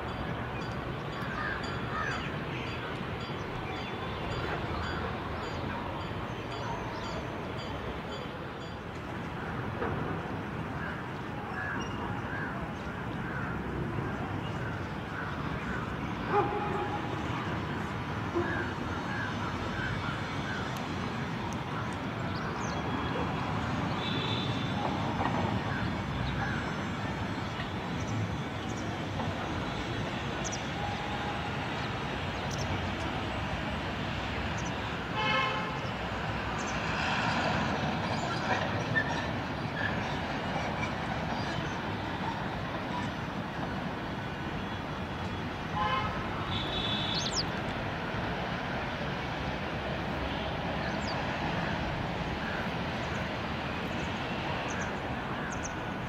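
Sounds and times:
road traffic noise: 0:00.0 - 0:56.0
vehicle horn tooting: 0:45.8 - 0:47.4.

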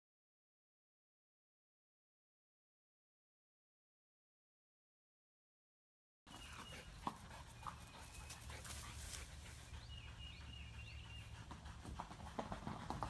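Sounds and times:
dog panting: 0:06.3 - 0:13.0.

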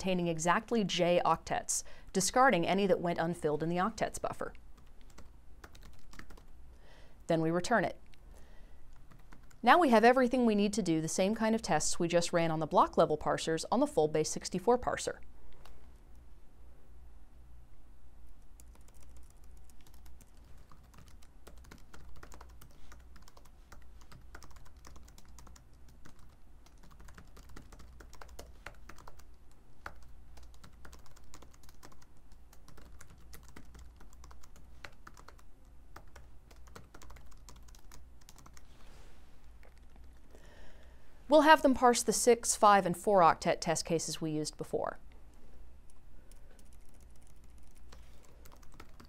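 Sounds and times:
low steady hum: 0:00.0 - 0:49.0
computer keyboard typing: 0:04.8 - 0:06.5, 0:08.9 - 0:09.6, 0:18.4 - 0:38.7, 0:45.9 - 0:49.0.

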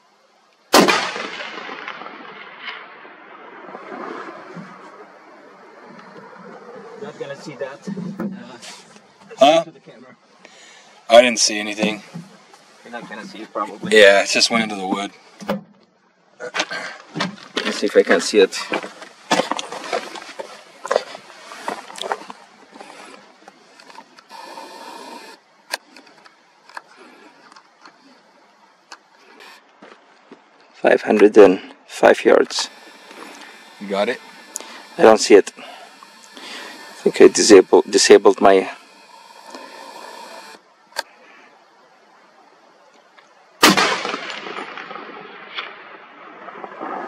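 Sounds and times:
rifle shot with rolling echo: 0:00.7 - 0:07.0, 0:43.6 - 0:47.0
camera zoom motor whirring: 0:23.8 - 0:25.4, 0:32.6 - 0:40.6.

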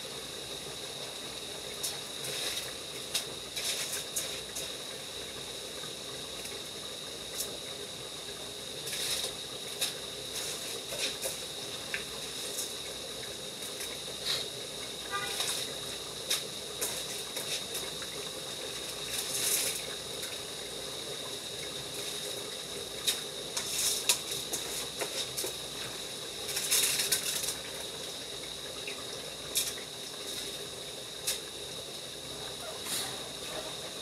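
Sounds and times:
wet rice splashing and rattling: 0:01.8 - 0:04.8, 0:08.8 - 0:12.9, 0:15.3 - 0:20.6, 0:21.6 - 0:28.7.

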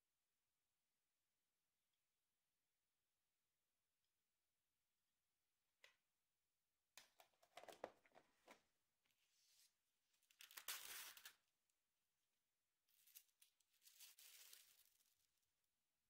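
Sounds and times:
plastic packaging crinkling: 0:13.8 - 0:15.1.

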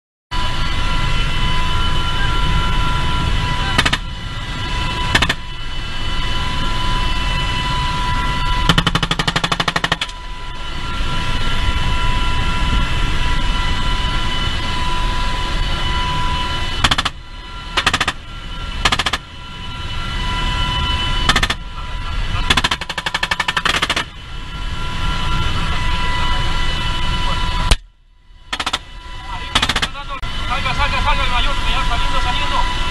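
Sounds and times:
helicopter rotor noise: 0:00.3 - 0:32.9
helicopter turbine whine: 0:00.3 - 0:32.9
machine-gun bursts: 0:08.8 - 0:10.1, 0:29.6 - 0:30.0.

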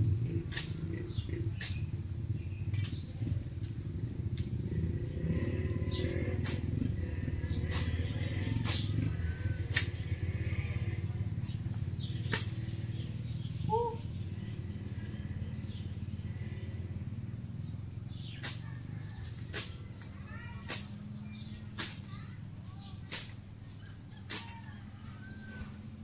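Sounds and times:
steady low rumble: 0:00.0 - 0:26.0
machete slashing grass: 0:01.6 - 0:01.8, 0:06.4 - 0:06.7, 0:07.6 - 0:08.0, 0:08.6 - 0:10.2, 0:12.2 - 0:12.7, 0:18.2 - 0:18.7, 0:19.4 - 0:22.2, 0:23.0 - 0:23.5, 0:24.2 - 0:24.6.

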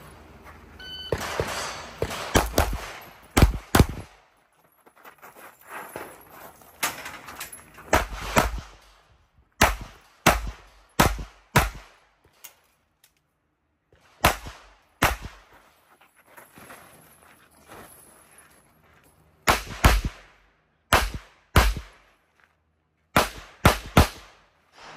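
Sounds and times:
pistol shots: 0:01.1 - 0:04.2, 0:07.9 - 0:08.9, 0:09.6 - 0:12.0, 0:14.2 - 0:15.4, 0:19.4 - 0:20.3, 0:20.9 - 0:22.0, 0:23.2 - 0:24.9.

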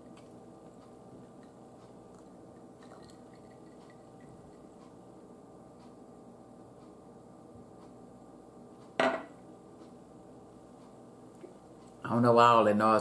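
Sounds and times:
low steady hum: 0:00.0 - 0:13.0
faint clicks and taps: 0:10.8 - 0:12.0.

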